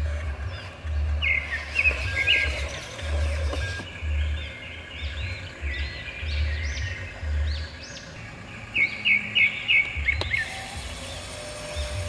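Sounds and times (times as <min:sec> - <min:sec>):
birds singing: 0:00.0 - 0:12.0
low uneven rumble: 0:00.0 - 0:12.0.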